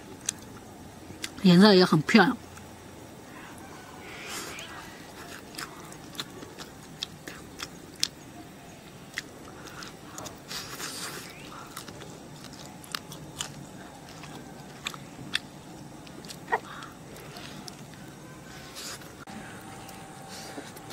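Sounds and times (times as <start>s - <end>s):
person biting and chewing meat: 5.2s - 8.2s, 9.1s - 18.1s.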